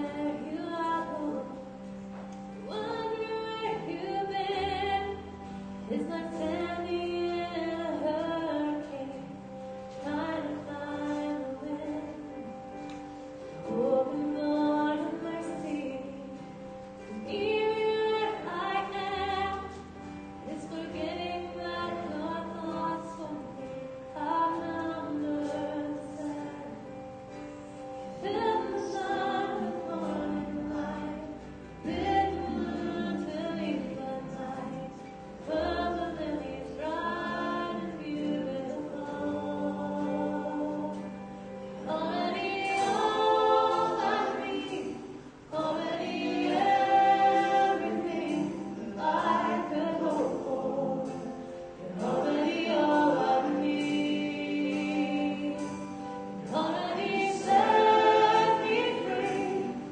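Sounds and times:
woman singing lead: 0:00.0 - 0:59.9
worship band playing: 0:00.0 - 0:59.9
backing voices singing: 0:28.2 - 0:41.1, 0:41.8 - 0:59.9.

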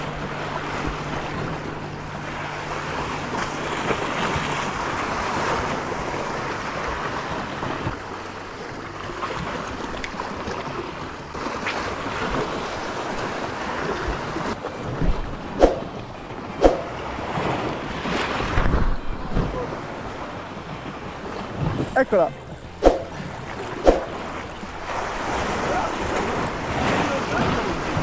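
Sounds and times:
sea water rushing: 0:00.0 - 0:28.0
wind against microphone: 0:12.0 - 0:28.0.

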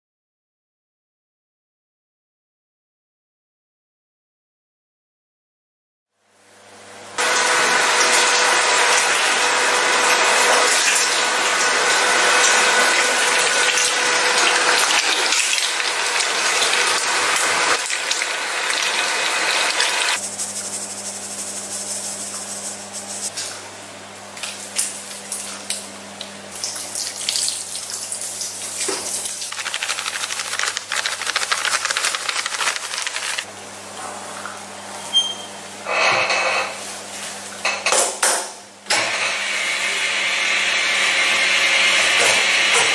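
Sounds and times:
electric meat grinder running: 0:07.2 - 0:20.3, 0:29.5 - 0:33.5, 0:38.9 - 0:42.9.

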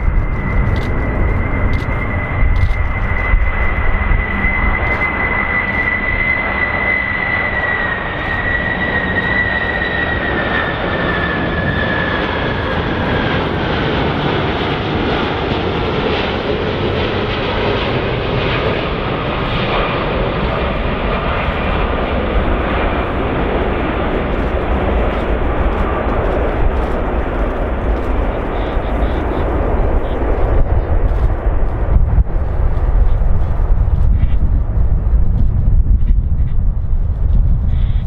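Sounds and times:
airplane engine rush and whine: 0:00.0 - 0:38.0.

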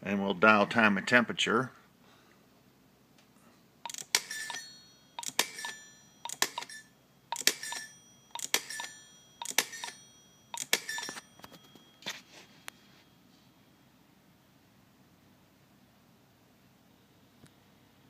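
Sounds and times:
rotary dial clicking: 0:03.9 - 0:04.6, 0:05.2 - 0:06.7, 0:07.3 - 0:10.0.

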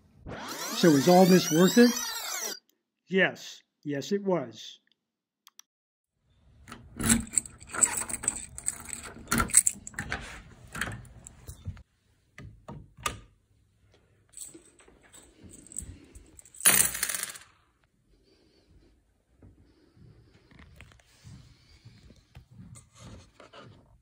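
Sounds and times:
key turning in door lock: 0:06.6 - 0:11.8
key ring jangling: 0:07.0 - 0:10.1.

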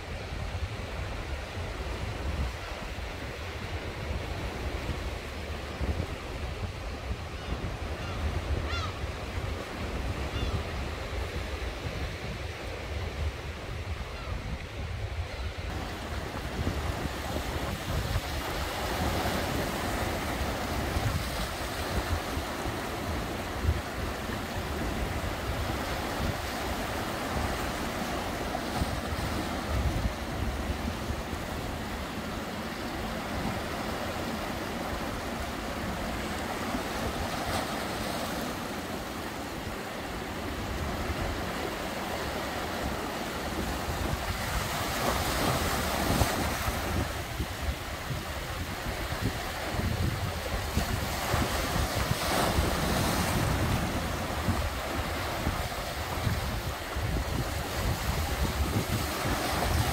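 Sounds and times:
wind buffeting microphone: 0:00.0 - 0:32.0, 0:42.8 - 0:59.9
waves breaking over rocks: 0:15.6 - 0:59.9.

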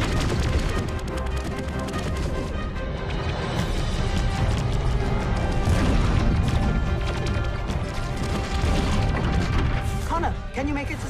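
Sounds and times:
dramatic orchestral music: 0:00.0 - 0:11.0
explosions and crashing impacts: 0:03.7 - 0:10.0.

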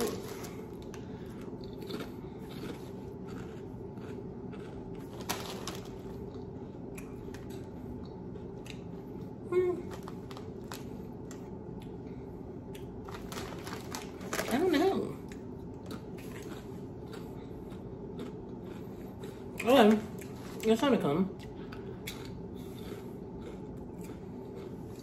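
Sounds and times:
chip bag crinkling: 0:00.0 - 0:03.6, 0:04.5 - 0:06.5, 0:09.8 - 0:11.5, 0:12.8 - 0:15.1.

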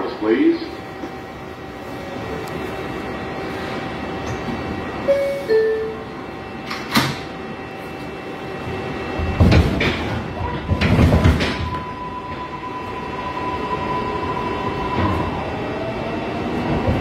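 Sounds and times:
train rumbling and clunking: 0:00.0 - 0:17.0
two-tone door chime: 0:05.1 - 0:06.1
train doors clunking shut: 0:06.6 - 0:07.4, 0:09.2 - 0:12.6.

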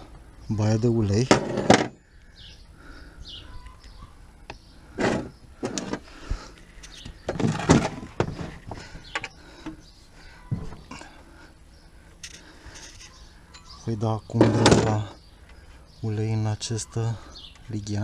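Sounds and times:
tool knocks and scrapes: 0:01.3 - 0:01.9, 0:05.0 - 0:06.0
plastic drain pan scraping on concrete: 0:01.3 - 0:02.0, 0:05.0 - 0:06.0, 0:07.3 - 0:08.7.

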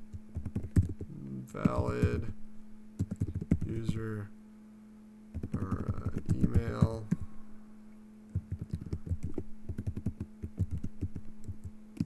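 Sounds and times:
faint low hum: 0:00.0 - 0:12.0
typing on computer keyboard: 0:00.3 - 0:02.0, 0:03.0 - 0:03.7, 0:05.3 - 0:07.2, 0:08.3 - 0:12.0.

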